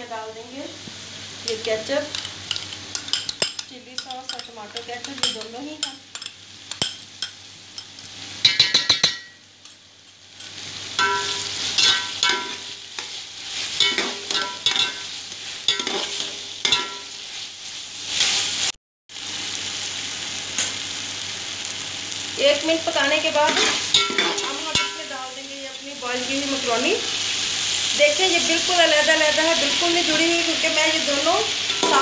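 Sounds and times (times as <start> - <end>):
vegetables sizzling: 0.0 - 32.0
metal spatula scraping pot: 15.7 - 17.1.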